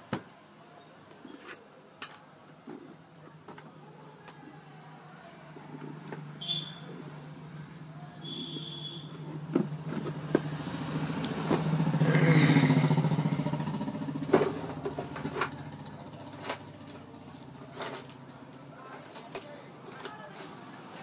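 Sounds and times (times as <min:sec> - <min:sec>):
vehicle engine passing by: 0:09.4 - 0:18.4.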